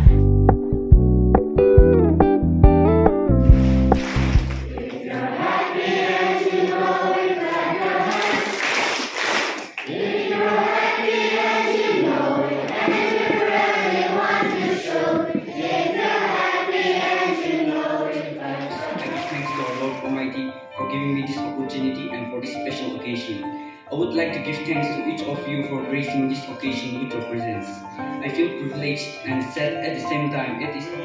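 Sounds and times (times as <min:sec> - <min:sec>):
girls choir singing: 0:04.6 - 0:08.8, 0:09.8 - 0:20.2.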